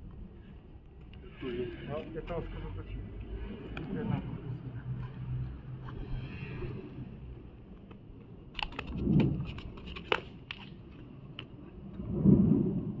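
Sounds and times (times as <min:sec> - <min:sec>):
training daggers clicking and knocking: 0:07.8 - 0:11.5.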